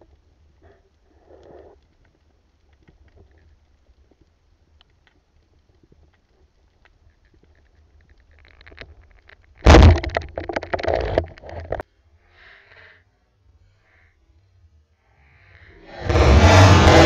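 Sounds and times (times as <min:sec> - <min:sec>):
speargun crack underwater: 0:08.2 - 0:11.8
clattering bubbling noise: 0:09.6 - 0:11.8.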